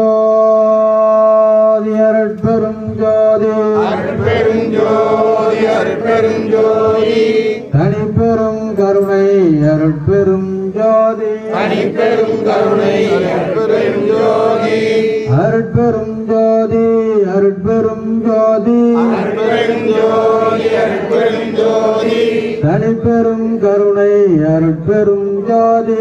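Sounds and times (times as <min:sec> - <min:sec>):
man leading chant on microphone: 0:00.0 - 0:26.0
men chanting in unison: 0:03.2 - 0:08.2, 0:11.2 - 0:15.8, 0:18.7 - 0:23.1.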